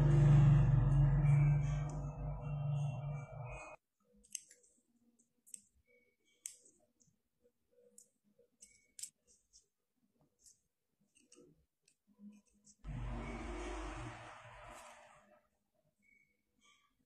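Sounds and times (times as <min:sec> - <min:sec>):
background music: 0:00.0 - 0:03.8
metal tweezers clicking and scraping: 0:04.2 - 0:07.1, 0:07.9 - 0:09.8.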